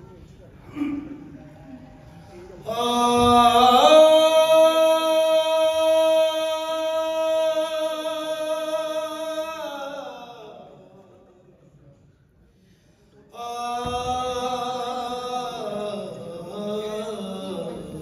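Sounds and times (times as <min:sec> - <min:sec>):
singer holding long note: 0:02.6 - 0:10.9.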